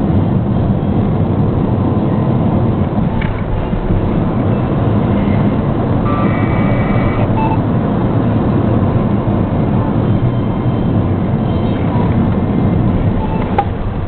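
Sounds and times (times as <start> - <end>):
car engine noise from cabin: 0.0 - 14.0
road noise: 0.0 - 14.0.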